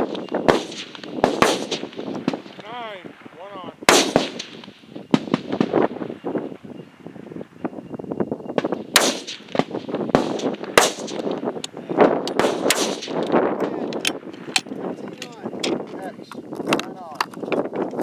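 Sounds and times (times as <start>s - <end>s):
rifle shots cracking: 0.0s - 6.0s, 8.6s - 14.7s.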